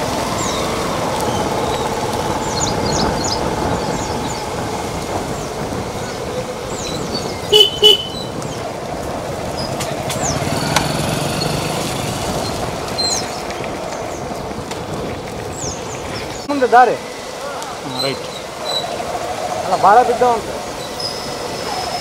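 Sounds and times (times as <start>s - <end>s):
scooters and motorcycles running: 0.0s - 22.0s
horn toots: 7.5s - 8.3s.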